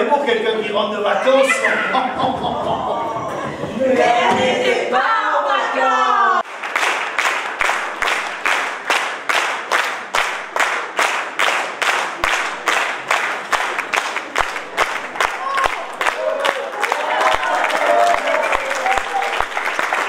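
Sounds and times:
audience clapping in time: 0:06.4 - 0:20.0.

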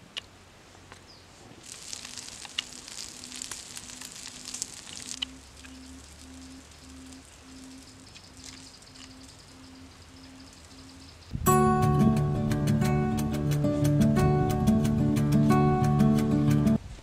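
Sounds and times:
frogs sizzling on hot stone: 0:01.6 - 0:10.7.

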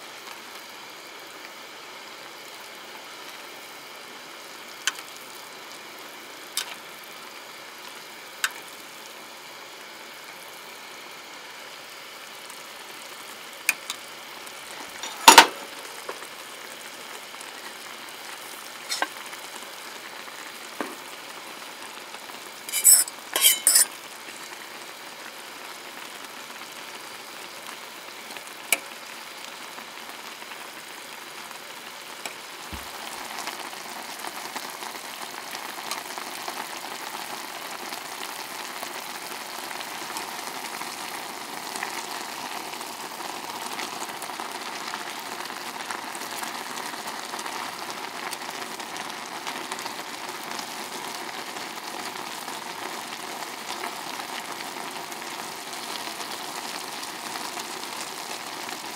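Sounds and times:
steady hiss: 0:00.0 - 0:37.5
metal utensils clinking on cookware: 0:15.0 - 0:15.5, 0:22.7 - 0:23.9.

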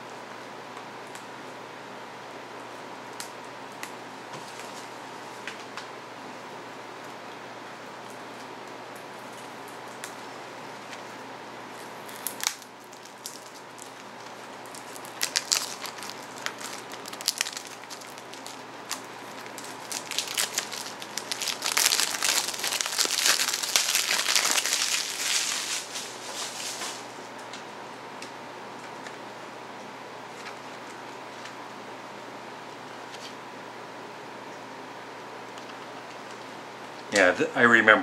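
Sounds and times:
plastic wrap crinkling and tearing: 0:11.8 - 0:27.2.

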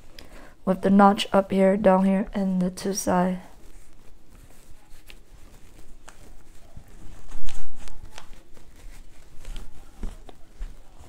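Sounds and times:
fabric rustling: 0:02.8 - 0:11.0.

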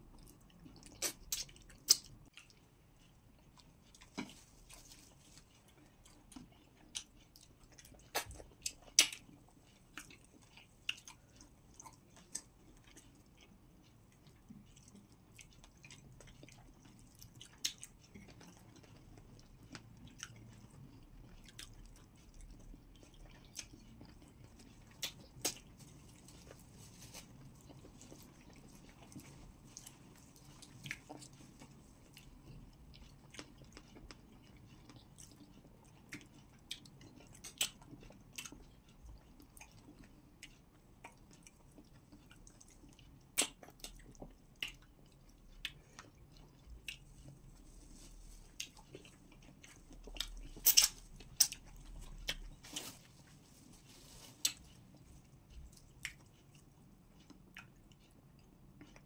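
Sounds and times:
people chewing food: 0:00.0 - 0:59.0
mouth clicks and smacks: 0:00.8 - 0:02.3, 0:43.3 - 0:44.0, 0:50.2 - 0:52.5.

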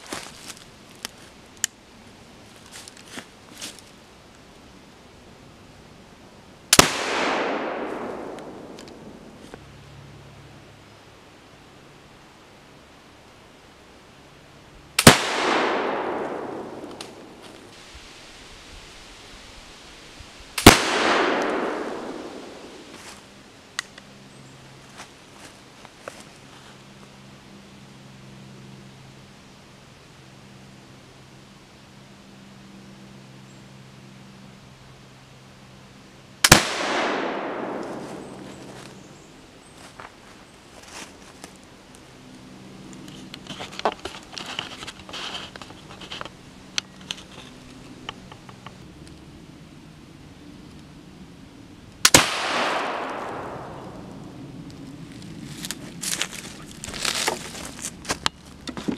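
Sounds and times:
footsteps through dry leaves: 0:00.0 - 0:01.4, 0:02.5 - 0:04.0, 0:22.6 - 0:23.4, 0:37.8 - 0:41.7, 0:54.5 - 0:58.6
pistol shot echoing: 0:06.7 - 0:08.8, 0:15.0 - 0:17.4, 0:20.6 - 0:22.9, 0:36.4 - 0:38.4, 0:52.0 - 0:54.1.

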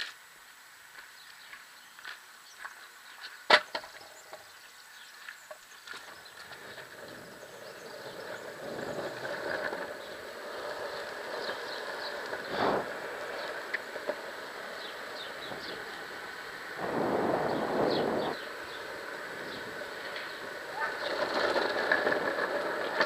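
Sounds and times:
longboard wheels rolling on pavement: 0:00.0 - 0:23.0.

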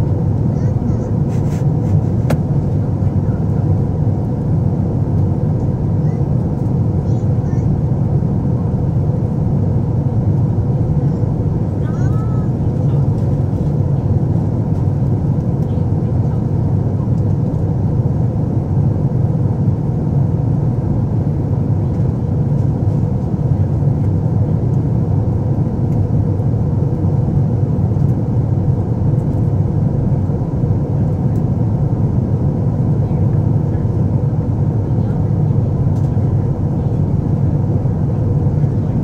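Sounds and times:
airplane cabin rumble: 0:00.0 - 0:39.0.

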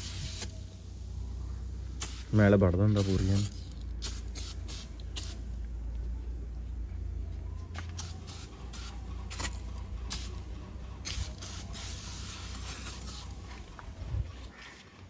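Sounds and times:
aerosol can spraying: 0:00.0 - 0:00.7, 0:01.9 - 0:05.5, 0:07.9 - 0:13.7.

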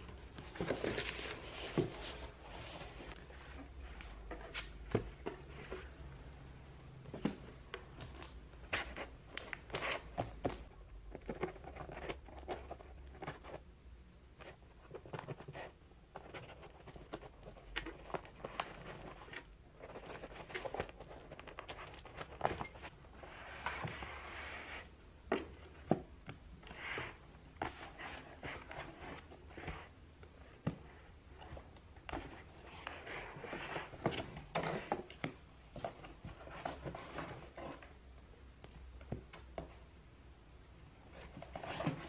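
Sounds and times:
cardboard scraping: 0:00.0 - 0:06.0, 0:30.7 - 0:35.1, 0:41.1 - 0:42.0.

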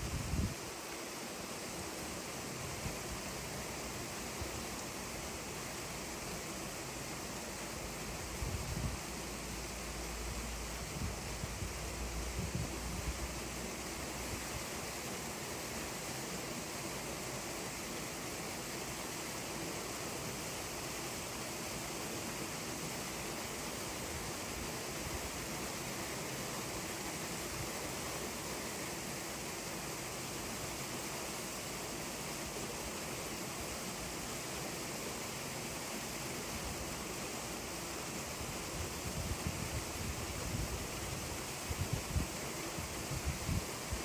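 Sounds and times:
wind buffeting microphone: 0:00.0 - 0:00.6.

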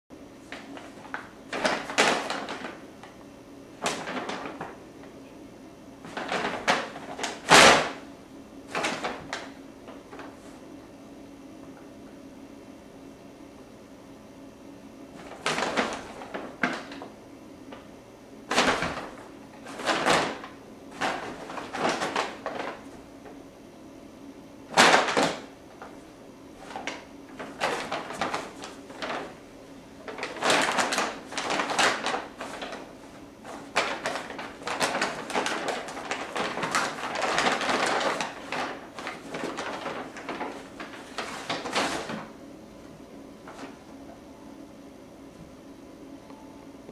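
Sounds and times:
kittens scrambling in paper bag: 0:00.4 - 0:04.8, 0:06.0 - 0:08.0, 0:08.7 - 0:10.6, 0:15.1 - 0:17.2, 0:18.5 - 0:23.3, 0:24.7 - 0:29.4, 0:30.0 - 0:42.4, 0:43.4 - 0:43.8
paper bag crinkling and rustling: 0:00.4 - 0:04.8, 0:06.0 - 0:08.0, 0:08.7 - 0:10.6, 0:15.1 - 0:17.9, 0:18.5 - 0:23.4, 0:24.7 - 0:29.4, 0:30.0 - 0:42.4, 0:43.4 - 0:43.8.

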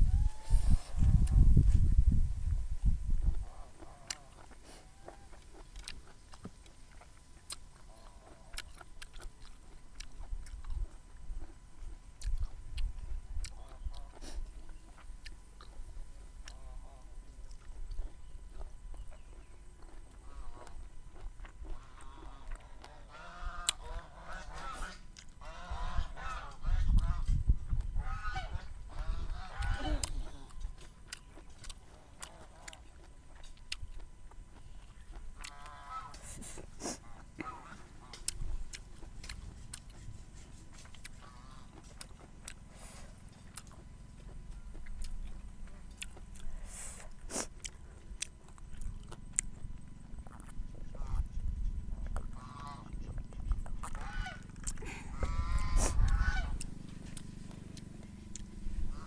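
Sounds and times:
low steady rumble: 0:00.0 - 0:59.0
person chewing food: 0:00.2 - 0:59.0
geese honking: 0:21.7 - 0:27.2, 0:35.5 - 0:38.3, 0:41.2 - 0:41.8, 0:52.3 - 0:53.1, 0:53.9 - 0:54.5, 0:55.2 - 0:56.7, 0:58.8 - 0:59.0.

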